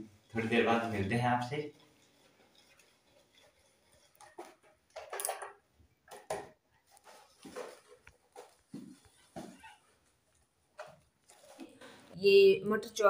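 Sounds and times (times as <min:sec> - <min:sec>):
handling rustles and light knocks: 0:01.7 - 0:12.2.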